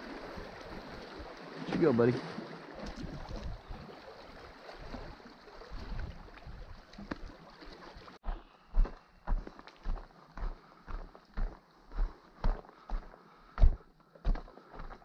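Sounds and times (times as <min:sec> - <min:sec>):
footsteps on loose rocks: 0:08.2 - 0:15.0.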